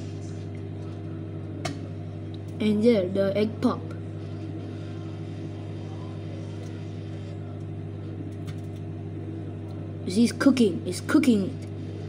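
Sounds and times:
microwave oven hum: 0.0s - 12.0s.

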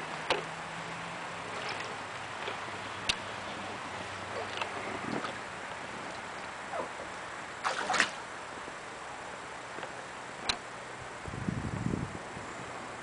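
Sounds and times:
water sloshing and splashing: 1.3s - 6.9s, 7.5s - 8.3s.

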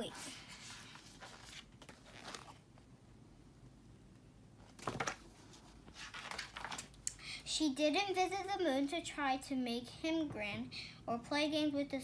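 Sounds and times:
book pages rustling: 0.2s - 2.6s, 4.7s - 7.0s.

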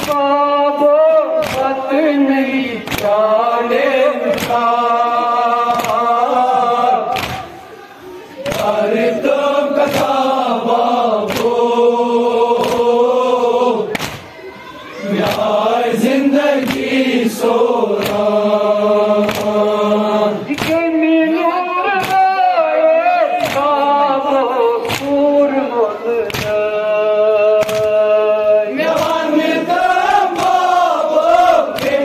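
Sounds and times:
men chanting together: 0.0s - 14.3s, 14.9s - 32.0s
hands striking chests: 13.9s - 14.3s, 20.5s - 20.8s.

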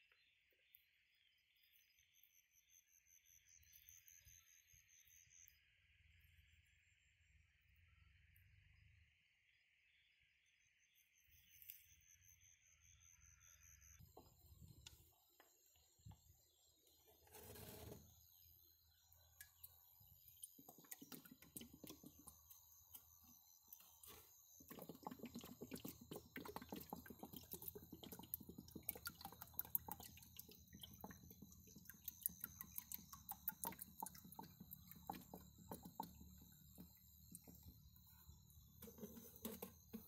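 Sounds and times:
liquid pouring into water: 19.5s - 23.2s, 24.2s - 38.0s
small bubble pops: 24.7s - 37.5s.

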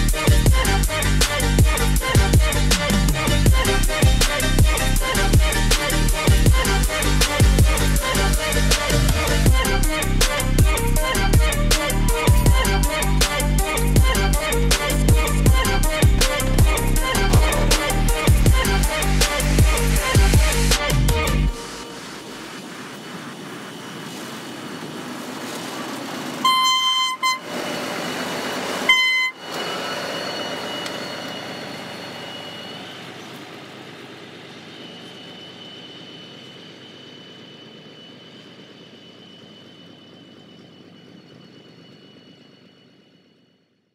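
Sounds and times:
freight train rolling past: 0.0s - 43.5s
thin high whine: 0.0s - 43.9s
diesel locomotive horn blasts: 26.4s - 33.4s.

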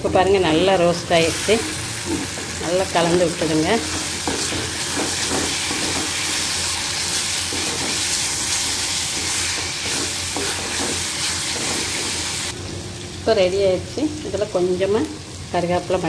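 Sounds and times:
vegetables sizzling in a pan: 0.0s - 16.0s
wooden spatula scraping: 7.0s - 12.5s.

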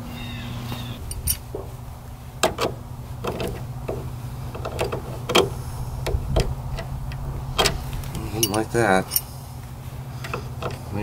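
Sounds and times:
steady low hum: 0.0s - 11.0s
wrench clinking on metal bolt: 2.4s - 9.3s.

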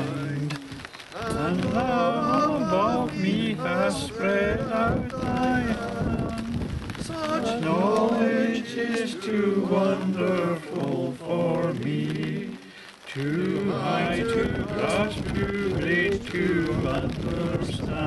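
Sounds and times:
man singing: 0.0s - 18.0s
people singing a hymn: 0.0s - 18.0s.

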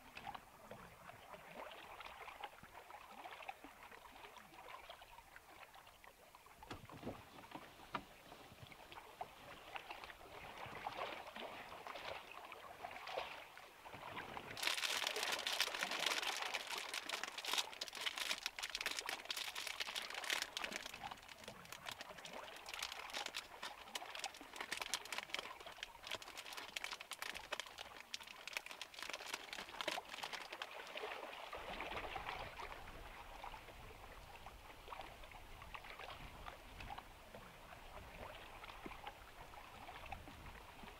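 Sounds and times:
plastic bag crinkling: 14.6s - 30.7s.

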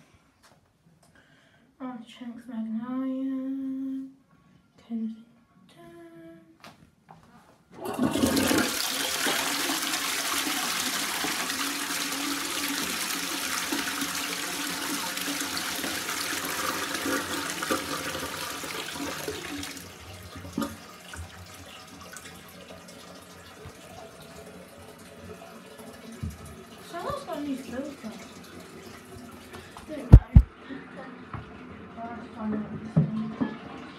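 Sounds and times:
toilet flushing: 7.8s - 33.9s
cistern refilling trickle: 8.1s - 29.8s.

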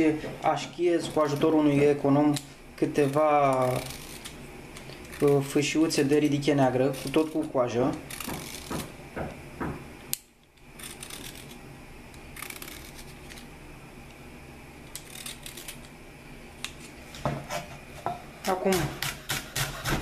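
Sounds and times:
vegetable peeler scraping: 1.0s - 2.2s, 2.8s - 8.9s, 10.7s - 11.6s, 12.2s - 13.5s, 14.9s - 16.0s, 18.6s - 20.0s.

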